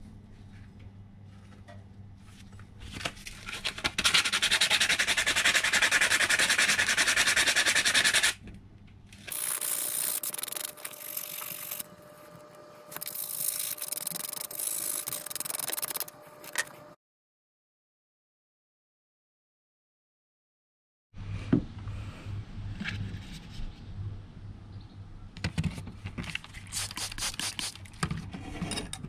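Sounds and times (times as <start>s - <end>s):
sandpaper rubbing on metal: 4.0s - 8.4s, 9.3s - 11.8s, 13.0s - 16.1s.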